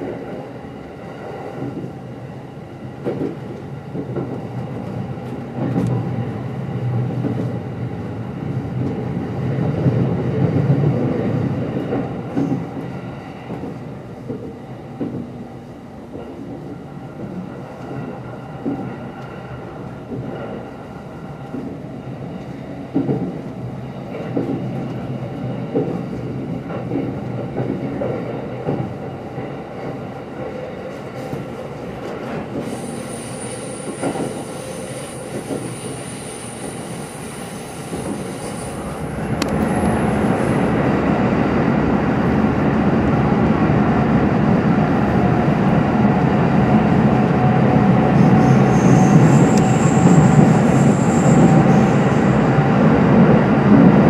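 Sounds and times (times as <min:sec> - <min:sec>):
high wheel squeal: 0:32.7 - 0:40.7, 0:48.2 - 0:52.5.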